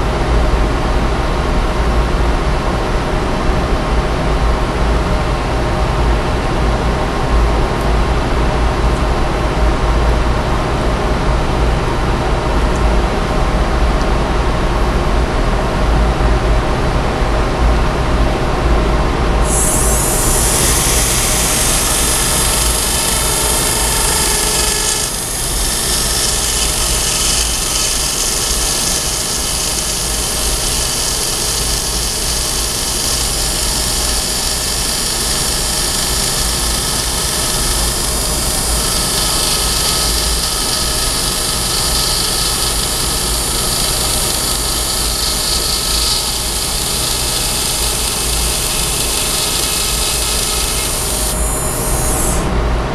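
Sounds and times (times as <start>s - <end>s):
dental drill whining: 19.4s - 52.4s.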